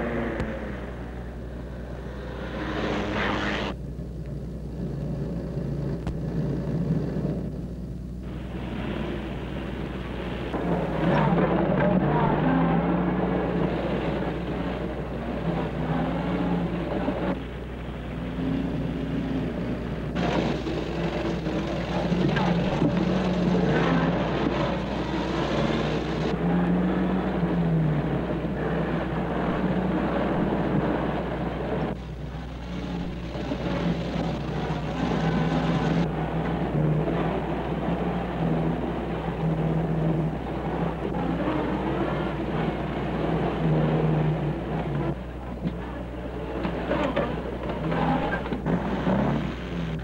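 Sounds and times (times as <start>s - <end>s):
car engines revving: 0.0s - 50.0s
steady low hum: 0.0s - 50.0s.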